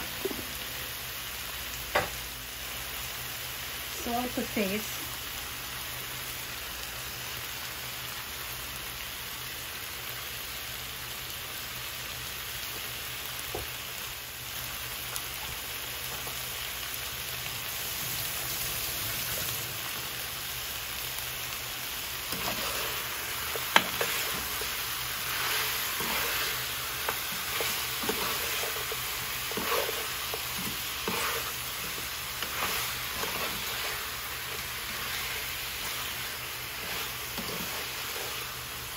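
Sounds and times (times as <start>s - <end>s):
food sizzling in a frying pan: 0.0s - 38.9s
spoon scraping a pan: 22.2s - 38.6s.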